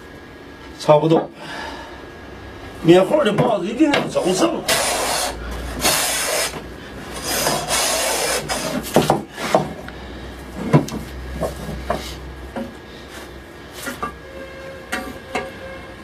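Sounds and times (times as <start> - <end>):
hand plane shaving board: 4.7 - 6.6, 7.2 - 9.7.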